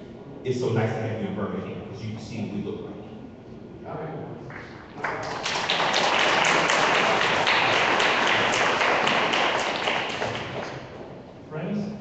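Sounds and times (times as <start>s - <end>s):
crowd applauding: 4.5s - 11.1s.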